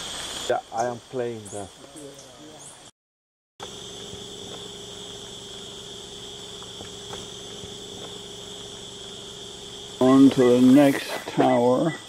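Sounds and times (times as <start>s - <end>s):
insects droning: 0.0s - 2.9s, 3.6s - 12.0s
low steady hum: 3.6s - 12.0s.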